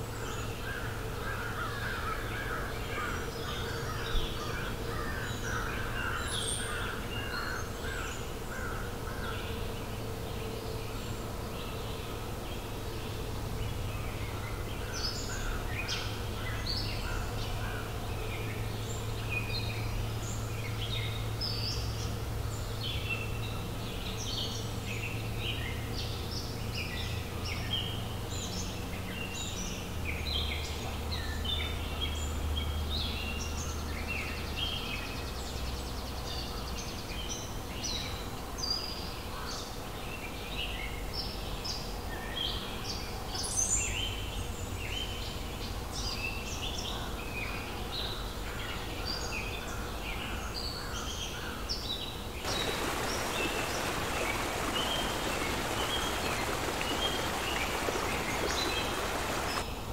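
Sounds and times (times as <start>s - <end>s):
low background noise: 0.0s - 59.9s
birds singing and chirping: 52.5s - 59.6s.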